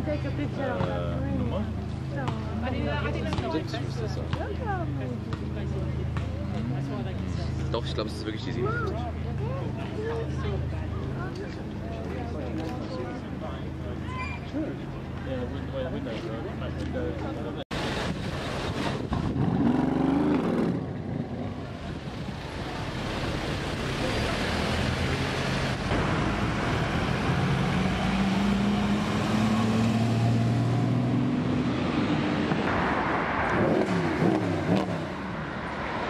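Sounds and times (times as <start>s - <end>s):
city traffic: 0.0s - 36.0s
sports car engines accelerating: 19.2s - 36.0s.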